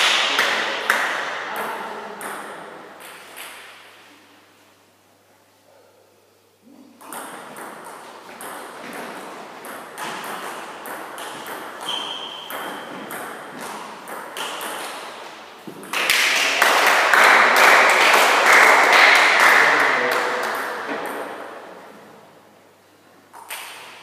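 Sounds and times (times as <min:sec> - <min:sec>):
high squeak: 0:11.8 - 0:12.9.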